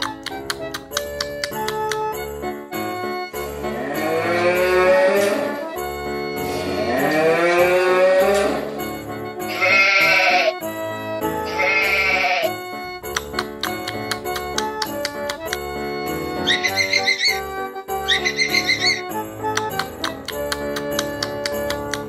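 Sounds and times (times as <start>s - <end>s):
christmas instrumental music: 0.0s - 22.0s
farm animal calls: 9.5s - 10.6s, 11.5s - 12.6s, 16.4s - 19.1s.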